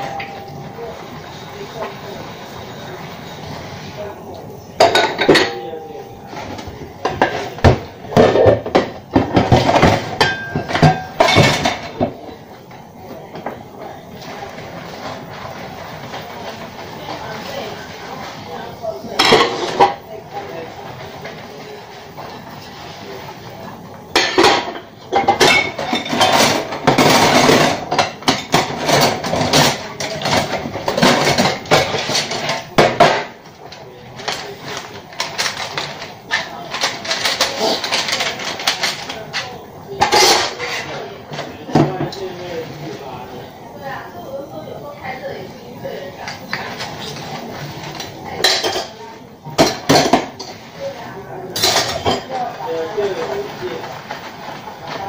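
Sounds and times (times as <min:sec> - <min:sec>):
bowl ringing: 0:00.0 - 0:01.5, 0:05.3 - 0:06.4
dishes clattering in a metal sink: 0:00.0 - 0:43.5, 0:46.2 - 0:55.0.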